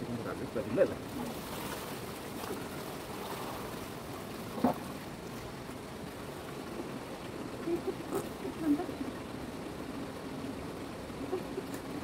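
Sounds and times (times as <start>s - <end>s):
running water rushing: 0.2s - 12.0s.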